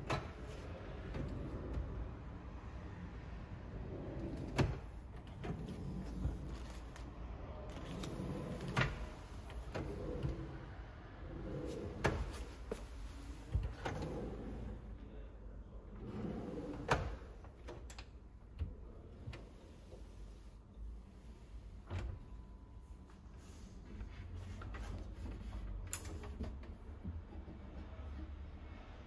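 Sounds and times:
drawers sliding and knocking shut: 0.0s - 2.2s, 3.7s - 6.9s, 7.7s - 14.8s, 16.0s - 17.9s.

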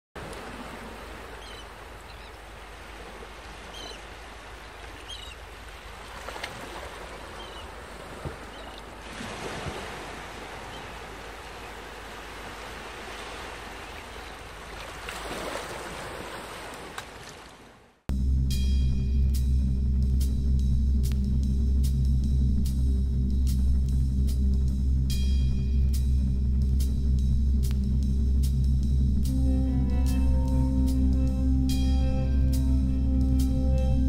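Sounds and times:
waves washing: 0.2s - 18.0s
wind: 0.2s - 34.0s.

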